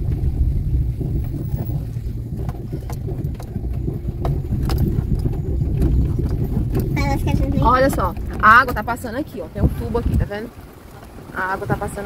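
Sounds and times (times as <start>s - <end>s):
car engine and tyres rumbling: 0.0s - 12.0s.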